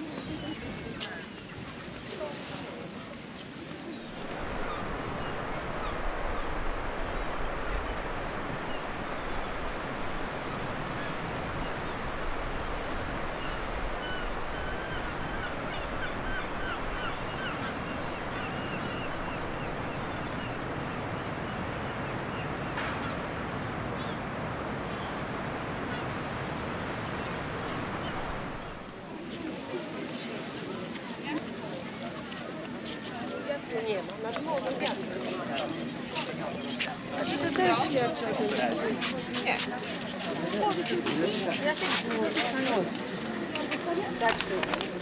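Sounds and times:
surf washing onto beach: 0:04.0 - 0:29.5.

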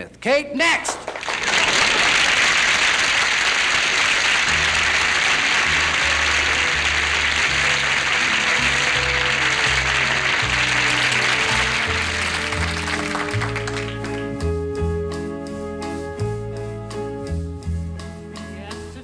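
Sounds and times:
audience applauding: 0:00.8 - 0:14.6
orchestra playing introduction: 0:02.0 - 0:19.0.

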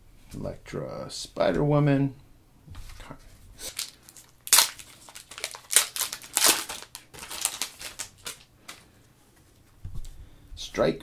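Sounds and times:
foil wrapper crinkling and tearing: 0:03.6 - 0:08.8.

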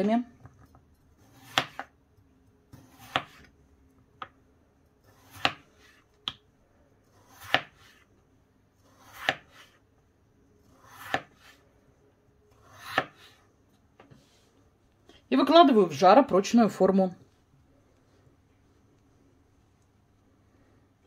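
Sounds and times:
knife slicing potato: 0:01.1 - 0:02.0, 0:02.7 - 0:03.6, 0:05.0 - 0:06.4, 0:07.0 - 0:08.1, 0:08.8 - 0:09.8, 0:10.6 - 0:11.6, 0:12.5 - 0:13.5.

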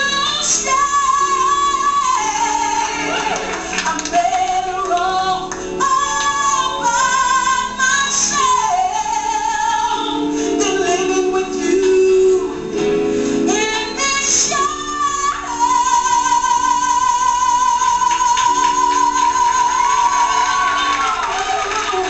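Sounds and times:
woman singing soul vocals: 0:00.0 - 0:22.0.

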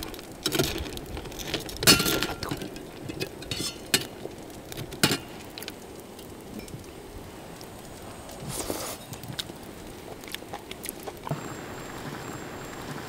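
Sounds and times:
shells and tongs clinking in metal bowl: 0:01.8 - 0:04.1.

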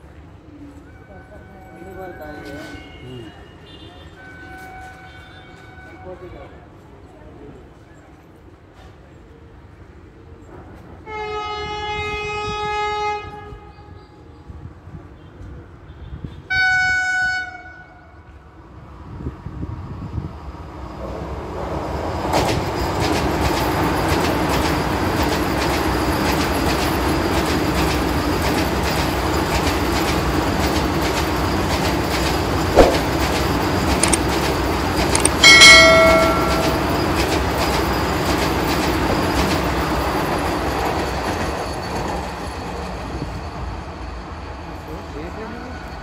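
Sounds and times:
train rumbling past: 0:18.3 - 0:46.0
sharp click: 0:32.8 - 0:33.4, 0:34.0 - 0:34.3, 0:35.2 - 0:36.7.

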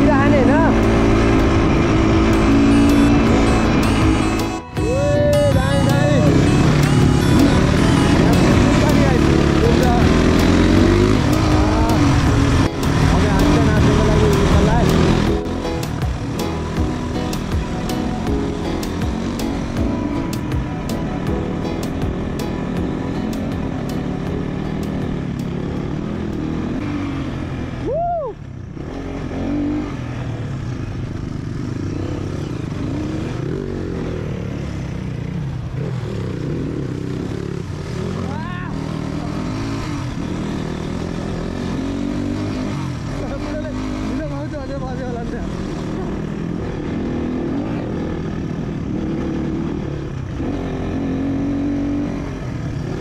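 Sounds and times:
motorcycle engine drone: 0:00.0 - 0:53.0
road noise: 0:00.0 - 0:53.0
rising and falling tone: 0:00.8 - 0:13.8.

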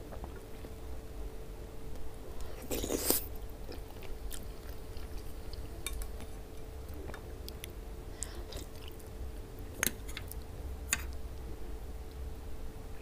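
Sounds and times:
faint steady hum: 0:00.0 - 0:13.0
close chewing of food: 0:02.4 - 0:11.2.

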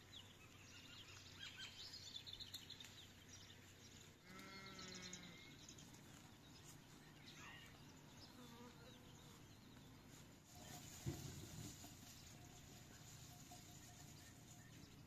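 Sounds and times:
faint animal bleat: 0:04.2 - 0:05.6.

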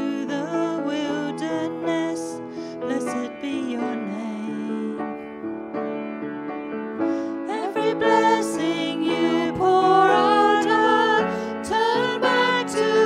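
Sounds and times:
grand piano chords: 0:00.0 - 0:13.0
people singing: 0:07.5 - 0:13.0.

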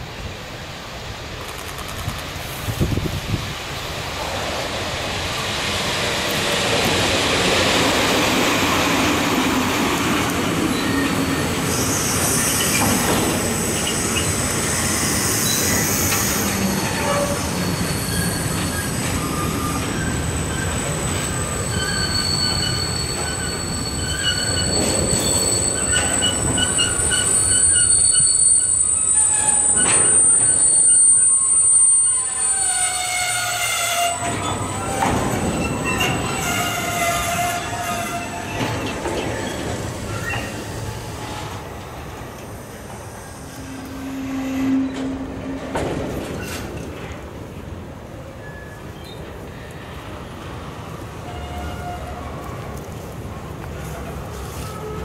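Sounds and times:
freight train rolling: 0:00.0 - 0:55.0
wheels squealing: 0:10.2 - 0:41.7.

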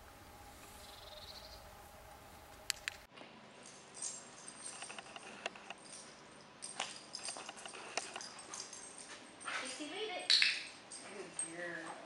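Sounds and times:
sharp clicks: 0:02.5 - 0:03.1
dog collar tags jingling: 0:03.6 - 0:12.0.

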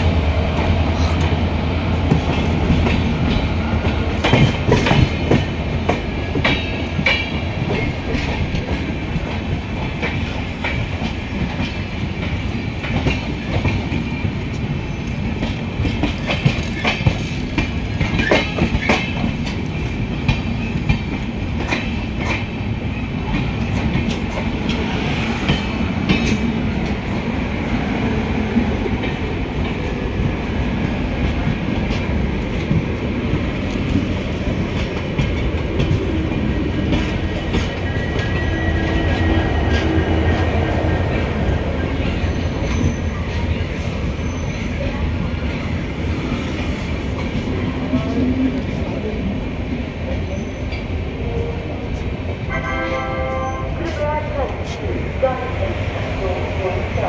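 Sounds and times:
train rumbling on track: 0:00.0 - 0:57.0
wheels clicking over rail joints: 0:02.1 - 0:22.5.

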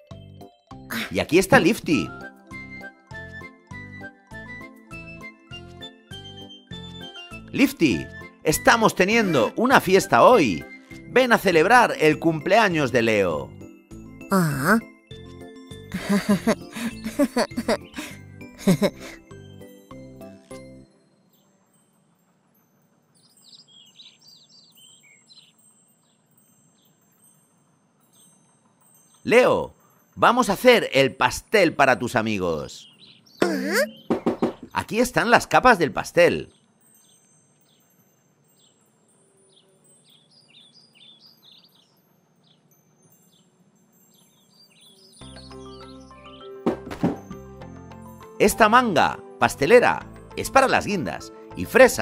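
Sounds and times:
bird chirping: 0:16.0 - 0:19.1, 0:20.9 - 0:30.2, 0:32.4 - 0:35.0, 0:36.2 - 0:46.6
high bird chirps: 0:23.2 - 0:27.0.

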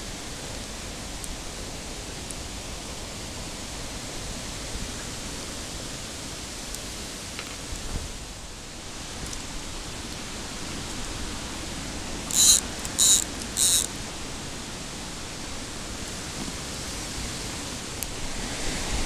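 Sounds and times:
high-pitched squeaks: 0:12.3 - 0:13.9.

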